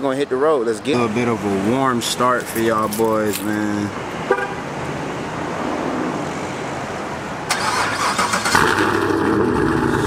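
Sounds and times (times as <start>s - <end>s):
car engine revving and idling: 7.5s - 10.0s
car starter cranking: 7.5s - 10.0s.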